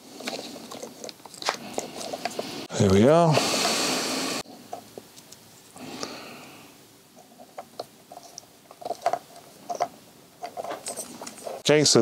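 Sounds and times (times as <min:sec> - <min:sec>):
hands rustling: 0:07.2 - 0:11.7.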